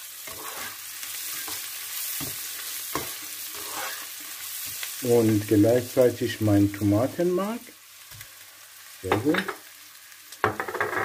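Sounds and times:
onions sizzling in oil: 0.0 - 11.0
spatula scraping pan: 0.2 - 4.8.

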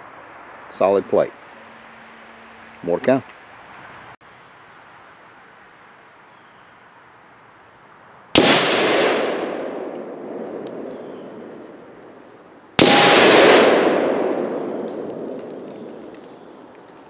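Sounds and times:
rifle shots hitting steel plate: 8.4 - 11.8, 12.8 - 16.1.

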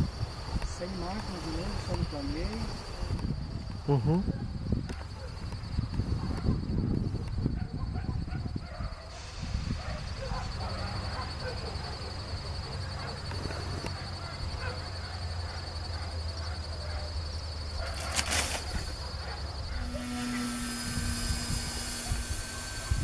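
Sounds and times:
wind buffeting microphone: 0.0 - 11.4, 20.4 - 23.0
brief crackle: 17.8 - 18.8
thin high whine: 18.0 - 23.0
electric motor humming: 19.6 - 23.0.

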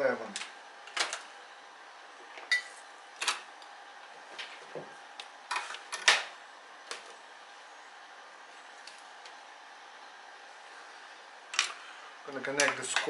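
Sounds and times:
cables and connectors clicking on metal: 11.5 - 13.0.

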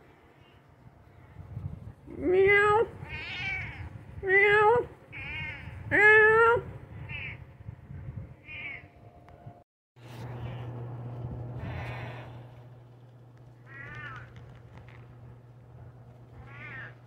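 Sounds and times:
cat meowing: 3.1 - 3.9, 8.4 - 8.8, 16.4 - 17.0.

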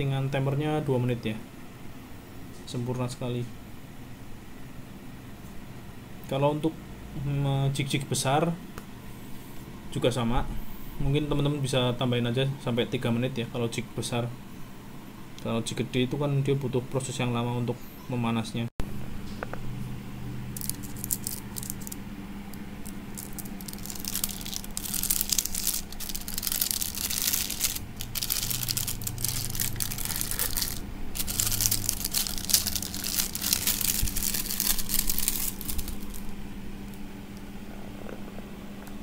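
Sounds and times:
steady low hum: 0.0 - 39.0
foil crinkling and tearing: 20.6 - 22.0, 23.1 - 36.3.

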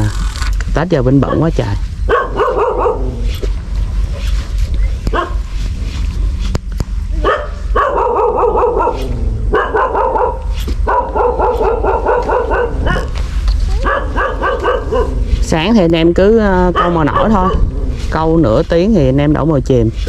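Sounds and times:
dogs barking: 1.1 - 3.5, 5.1 - 5.6, 7.1 - 15.4, 16.6 - 17.9.

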